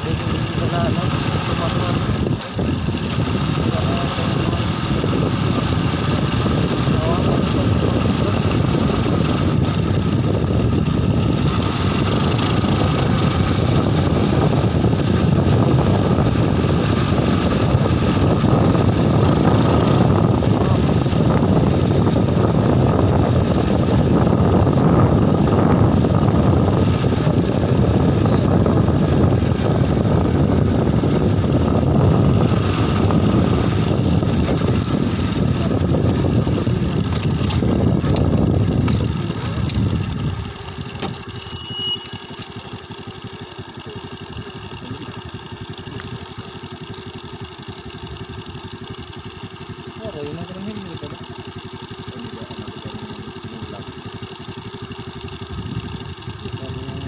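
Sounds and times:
wind buffeting the microphone: 0:00.0 - 0:41.1, 0:55.3 - 0:57.0
motorcycle engine running: 0:00.0 - 0:57.0.

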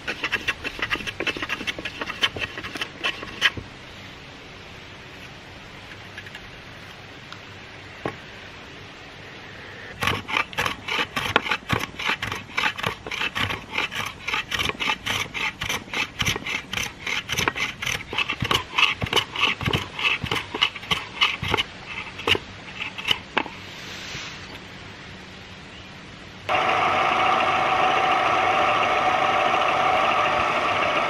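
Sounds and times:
hand tool scraping wood: 0:00.0 - 0:03.6, 0:09.9 - 0:23.6.

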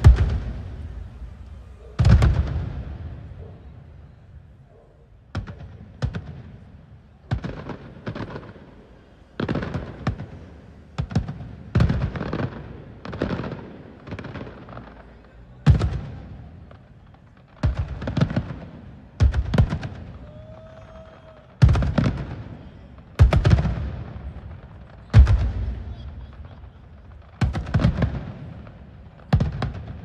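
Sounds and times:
fireworks bangs: 0:00.0 - 0:30.0.

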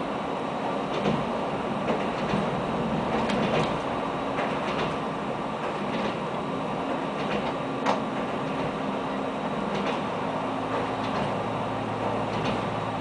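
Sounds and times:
railbus engine drone: 0:00.0 - 0:13.0.

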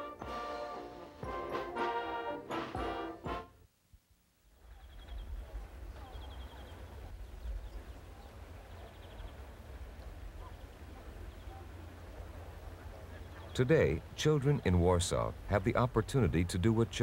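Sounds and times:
birds chirping: 0:04.6 - 0:16.8.

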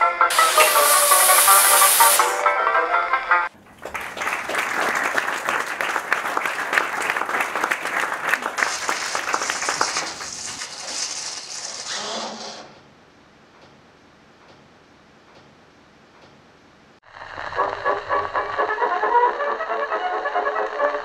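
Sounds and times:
crowd applauding: 0:03.5 - 0:10.7.

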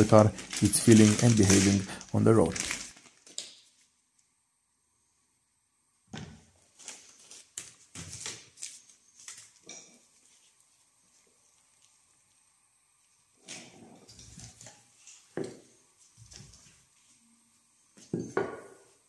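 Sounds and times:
handling rustles and knocks: 0:00.0 - 0:03.5.

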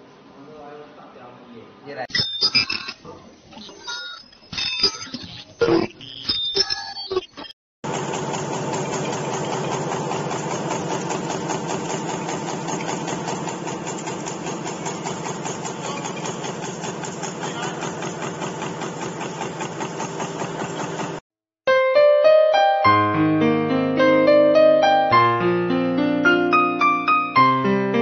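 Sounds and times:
motor hum: 0:07.8 - 0:21.2.

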